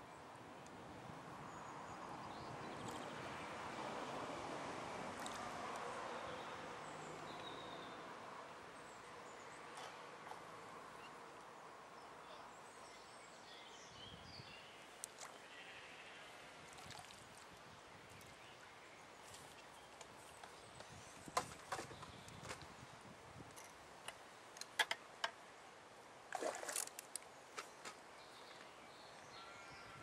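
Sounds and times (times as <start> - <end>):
faint bird chirps: 28.3 - 30.0.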